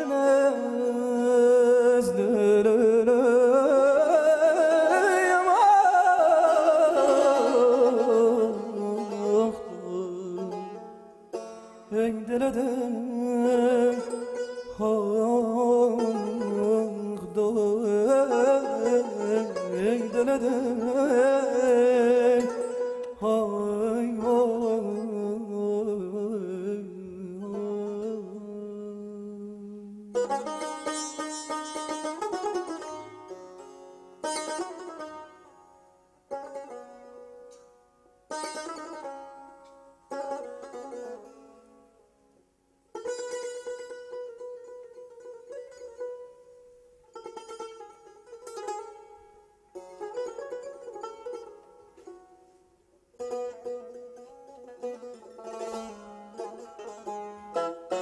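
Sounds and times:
man singing wordless melody: 0.0s - 11.1s, 11.8s - 30.8s.

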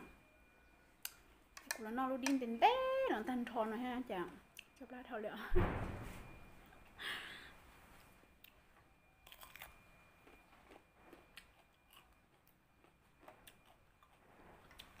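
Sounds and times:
person chewing crunchy cucumber: 9.2s - 15.0s.

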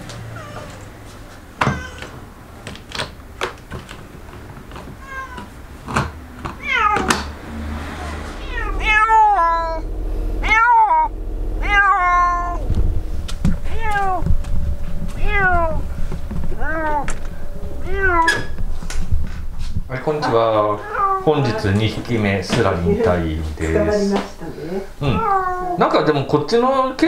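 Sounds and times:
cat meowing loudly: 1.6s - 2.2s, 5.0s - 5.5s.

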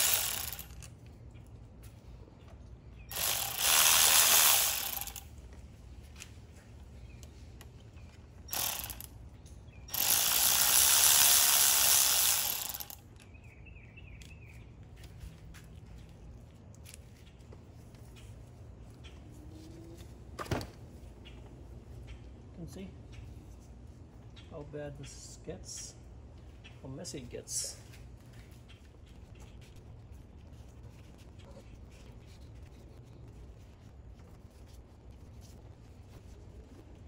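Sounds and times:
electric ratchet spinning: 0.0s - 0.9s, 3.1s - 5.3s, 8.5s - 9.1s, 9.9s - 13.0s.

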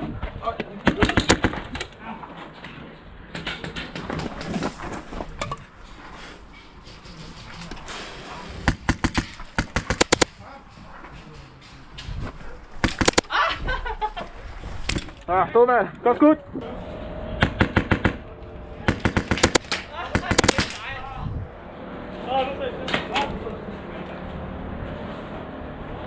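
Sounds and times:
airsoft rifles firing bursts: 0.8s - 1.8s, 8.7s - 10.4s, 12.8s - 13.4s, 17.4s - 18.2s, 18.9s - 20.9s.

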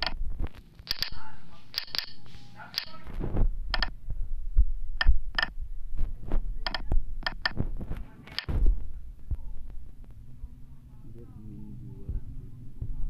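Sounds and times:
sharp key clicks: 0.8s - 3.0s, 3.7s - 3.9s, 6.6s - 7.6s
low thumping rumble: 3.1s - 13.0s.

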